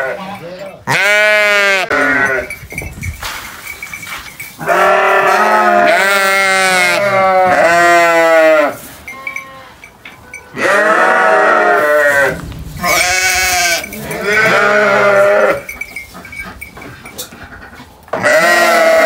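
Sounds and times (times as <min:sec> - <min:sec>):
sheep bleating: 0:00.0 - 0:02.6, 0:04.6 - 0:09.8, 0:10.5 - 0:15.7, 0:18.2 - 0:19.0.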